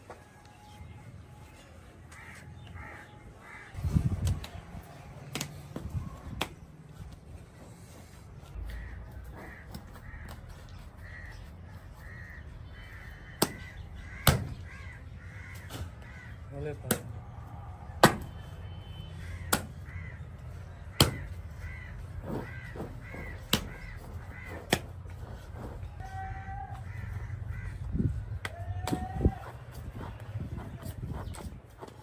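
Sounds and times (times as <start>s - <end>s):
crows cawing: 2.1s - 3.8s, 8.6s - 17.8s, 19.2s - 28.6s.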